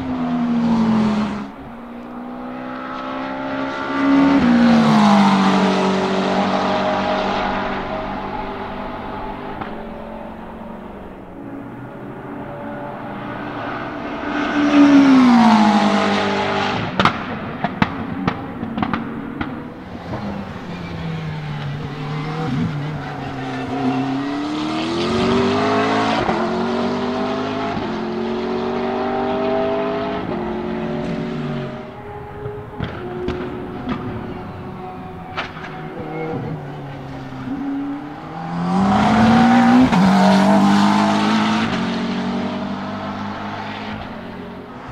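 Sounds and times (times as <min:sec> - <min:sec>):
race car engines at speed: 0:00.0 - 0:44.9
exhaust pops: 0:32.3 - 0:36.7.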